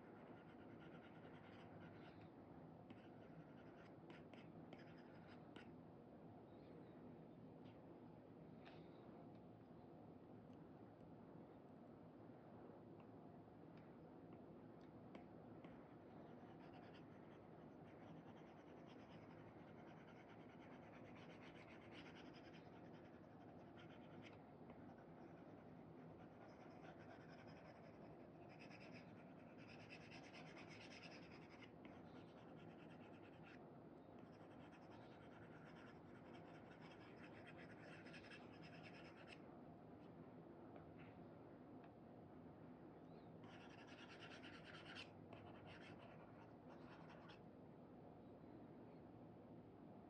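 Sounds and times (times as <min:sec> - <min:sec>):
stylus scratching on screen: 0:00.0 - 0:02.2, 0:02.9 - 0:05.6, 0:16.5 - 0:33.6, 0:34.2 - 0:39.4, 0:43.5 - 0:47.4
low room hum: 0:00.0 - 0:50.0.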